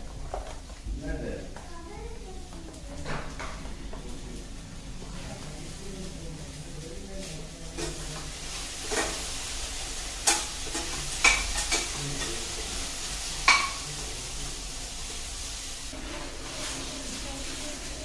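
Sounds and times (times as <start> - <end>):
utensils clinking on steel cookware: 7.2 - 14.2.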